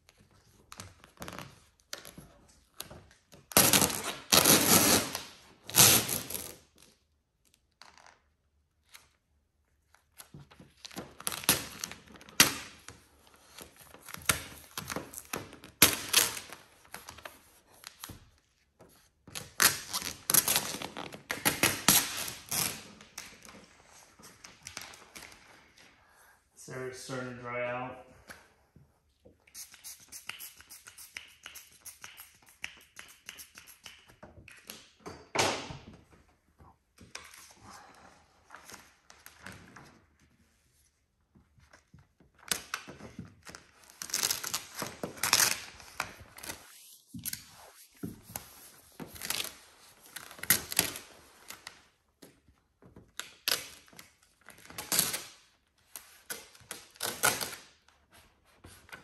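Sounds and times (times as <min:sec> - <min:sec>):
vinyl decal peeling: 0:00.5 - 0:06.9, 0:42.4 - 0:51.8.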